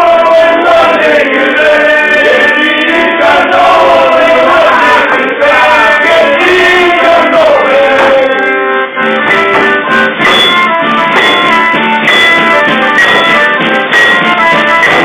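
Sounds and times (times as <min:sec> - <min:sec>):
button accordion folk tune: 0:00.0 - 0:15.0
tambourine beating rhythm: 0:09.1 - 0:15.0.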